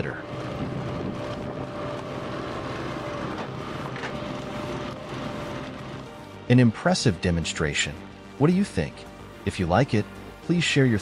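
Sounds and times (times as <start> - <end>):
hydraulic log splitter running: 0.2 - 6.5.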